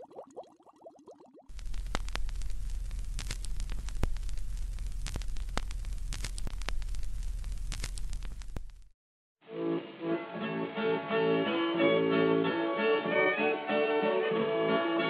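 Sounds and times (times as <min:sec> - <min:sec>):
radio static hiss: 0:01.5 - 0:08.9
sharp static crackles: 0:01.5 - 0:09.0.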